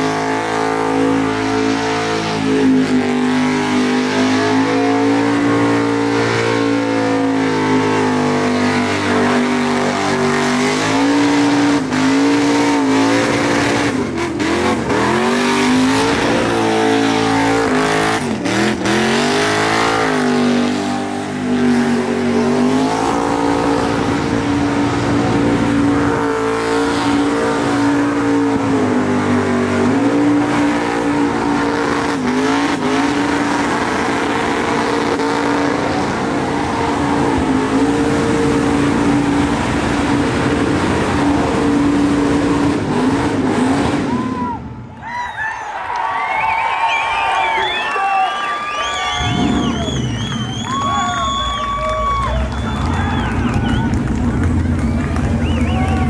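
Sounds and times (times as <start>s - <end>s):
car engine at high revs: 0.0s - 44.6s, 49.0s - 56.0s.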